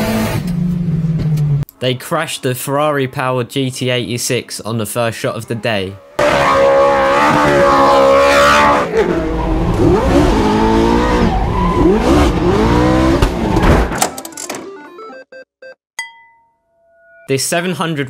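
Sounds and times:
car engine revving high: 0:06.1 - 0:13.7.

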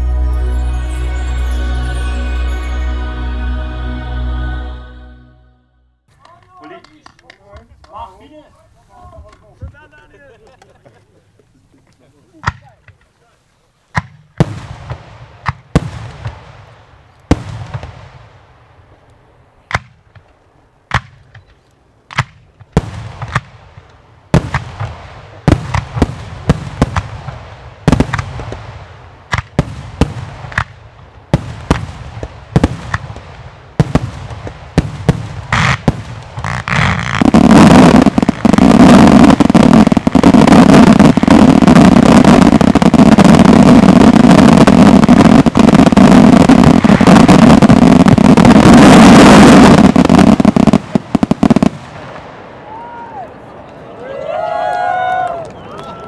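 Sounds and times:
firework bangs: 0:13.9 - 0:19.0, 0:22.1 - 0:53.6
rapid firework barrage: 0:14.0 - 0:18.6, 0:22.1 - 0:52.9.

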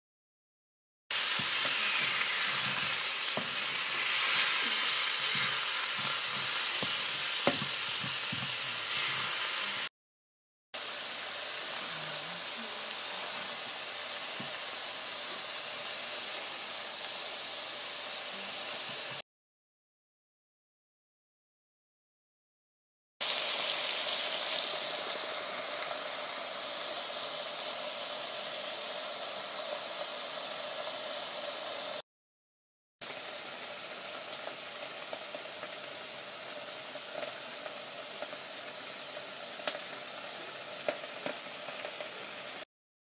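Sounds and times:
food sizzling in frying pan: 0:01.1 - 0:09.9, 0:10.8 - 0:19.2, 0:23.2 - 0:32.0, 0:33.0 - 0:42.7
sauce simmering with small pops: 0:37.0 - 0:40.1, 0:40.8 - 0:42.6.

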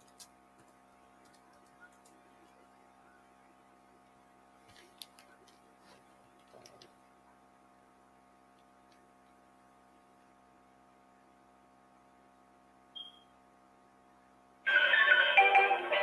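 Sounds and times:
faint electrical hum: 0:00.0 - 0:16.0
short high beep: 0:13.0 - 0:13.3.

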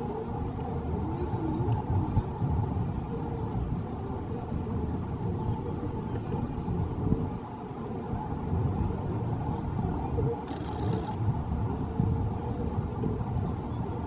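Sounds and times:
boat low rumble: 0:00.0 - 0:14.0.

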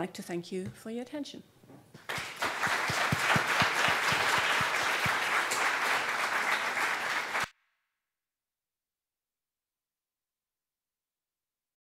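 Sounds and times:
audience applauding: 0:02.0 - 0:07.5.

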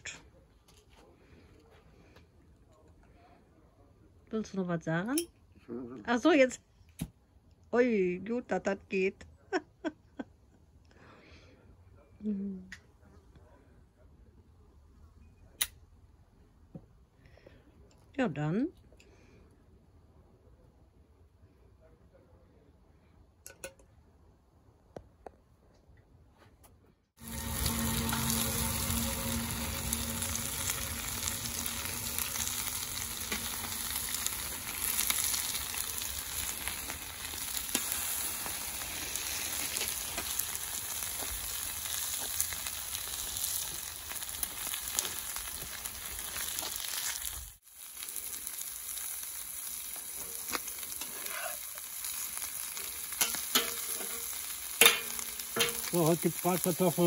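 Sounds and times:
metal spatula scraping: 0:27.2 - 0:36.8, 0:50.2 - 0:51.8, 0:52.8 - 0:56.3
meat sizzling in a pan: 0:27.2 - 0:57.0.

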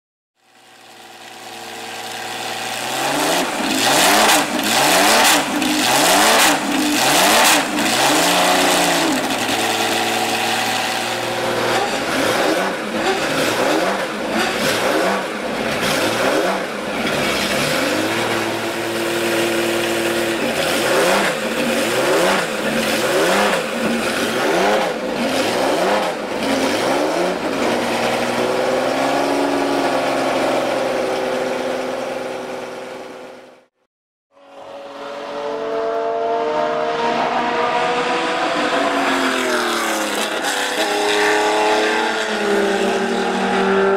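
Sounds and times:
car engine idling: 0:00.4 - 0:33.4.

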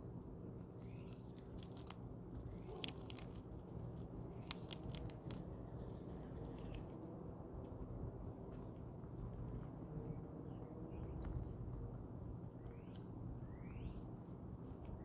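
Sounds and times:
chipmunk crunching peanut shells: 0:00.1 - 0:13.4.

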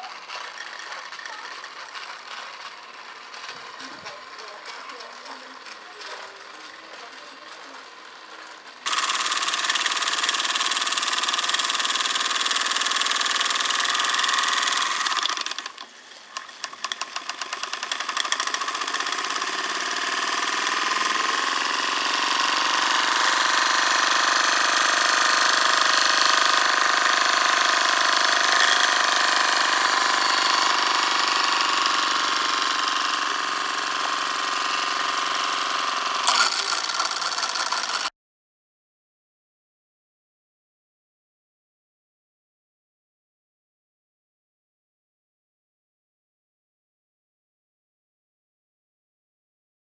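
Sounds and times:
steam engine mechanical chatter: 0:00.0 - 0:38.1.

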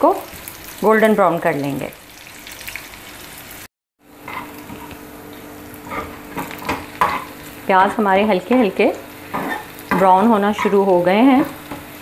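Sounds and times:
onions sizzling in oil: 0:00.0 - 0:12.0
spatula scraping a pan: 0:05.8 - 0:07.4, 0:09.3 - 0:11.9.

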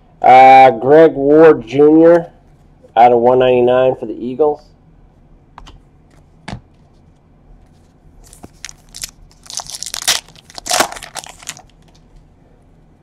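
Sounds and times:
foil wrapper crinkling and tearing: 0:08.2 - 0:12.0.

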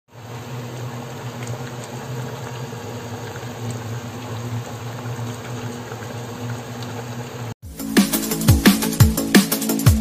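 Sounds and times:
broth boiling in a pot: 0:00.1 - 0:07.6.

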